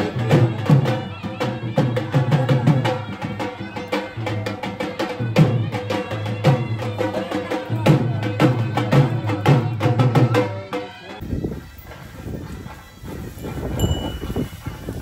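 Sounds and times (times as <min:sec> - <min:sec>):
folk music with drums: 0:00.0 - 0:15.0.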